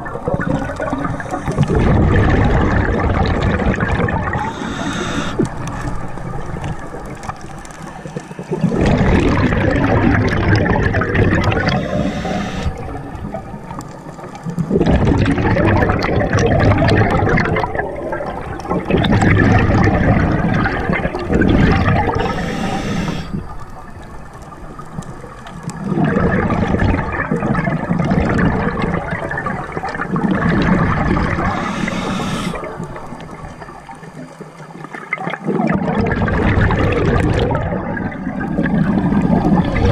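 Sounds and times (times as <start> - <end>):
exhaled bubbles rushing: 0.0 - 39.9
regulator hissing inhale: 0.9 - 1.7, 4.3 - 5.9, 11.5 - 13.0, 22.0 - 23.6, 31.3 - 33.0.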